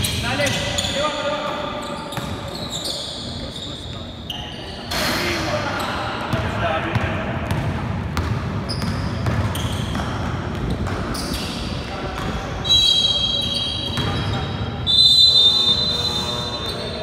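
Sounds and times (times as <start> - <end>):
basketball bouncing: 6.3 - 11.2.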